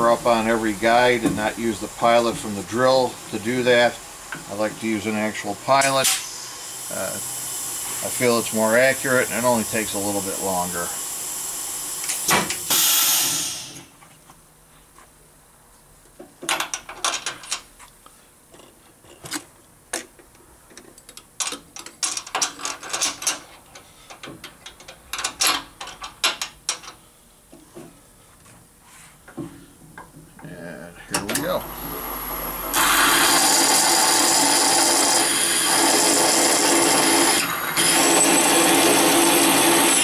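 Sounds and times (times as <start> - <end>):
compressed air hiss: 5.9 - 13.9.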